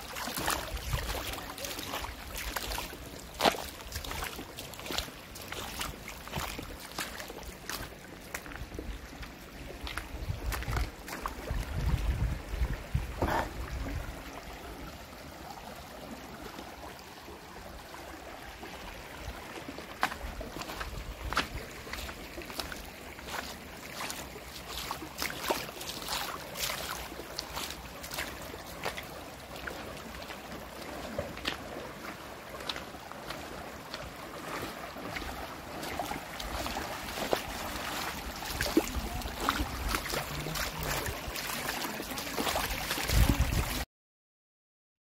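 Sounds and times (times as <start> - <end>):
water splashing: 0.0 - 43.9
wind rumbling on microphone: 8.5 - 14.4, 42.6 - 43.8.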